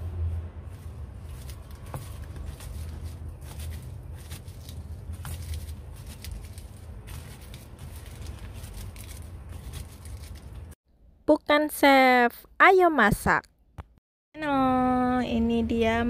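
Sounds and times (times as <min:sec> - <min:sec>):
hands kneading vegetable slices: 0:00.5 - 0:10.8.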